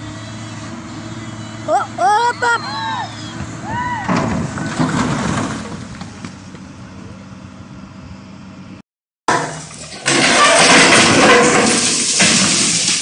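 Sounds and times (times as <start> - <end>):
steady engine hum: 0.0 - 8.8
rumble of a rockslide: 3.3 - 6.8, 9.6 - 13.0.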